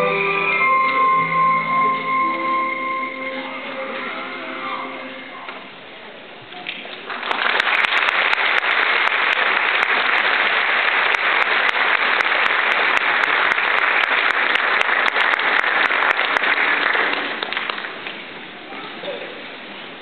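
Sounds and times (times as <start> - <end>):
audience applauding: 6.8 - 18.2.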